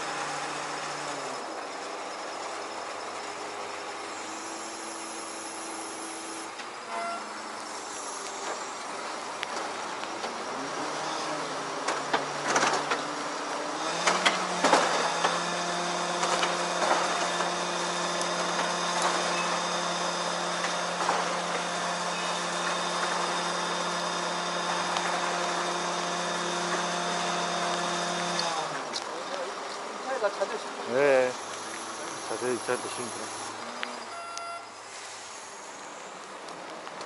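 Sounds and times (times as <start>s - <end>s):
engine and hydraulic winch humming: 0.0s - 36.7s
knocks and clatters: 11.8s - 13.1s, 14.0s - 15.4s.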